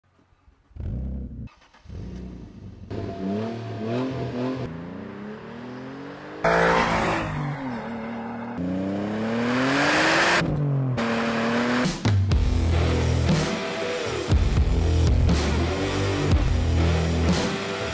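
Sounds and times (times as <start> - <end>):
car engine revving and accelerating: 1.8 - 12.0.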